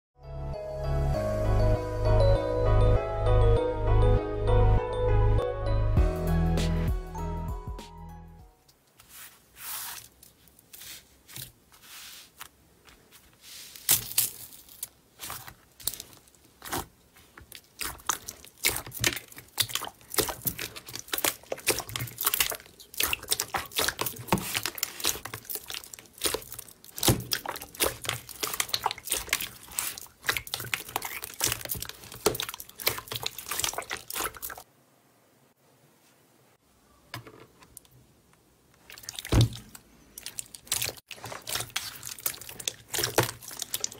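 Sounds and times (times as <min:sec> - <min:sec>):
slime squelching and popping: 0:13.9 - 0:34.7, 0:38.8 - 0:43.9.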